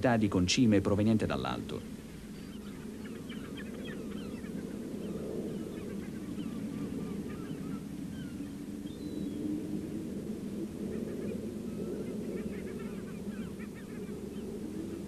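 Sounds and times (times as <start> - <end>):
harsh low seabird calls: 0.9 - 9.7, 10.8 - 15.0.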